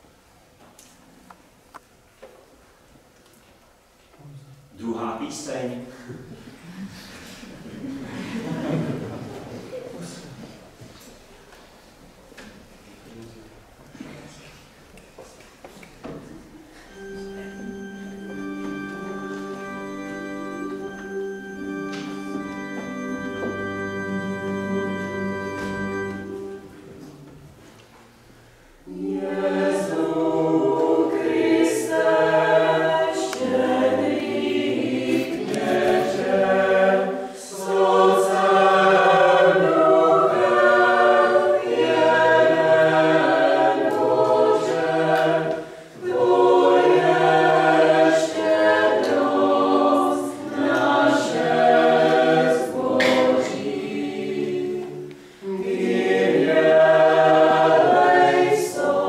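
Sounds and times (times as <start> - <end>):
pipe organ chord: 16.9 - 27.0
women's choir singing unaccompanied: 28.8 - 59.0.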